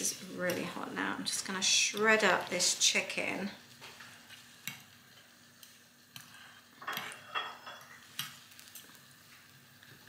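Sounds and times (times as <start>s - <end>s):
cutlery clinking on ceramic dish: 6.8s - 7.9s.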